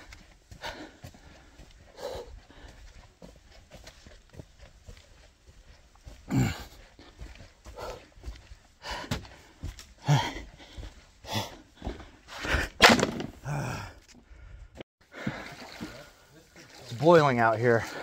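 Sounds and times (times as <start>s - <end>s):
man breathing: 0.0s - 3.6s, 5.7s - 12.8s, 13.4s - 16.2s
footsteps on dirt trail: 0.0s - 14.2s.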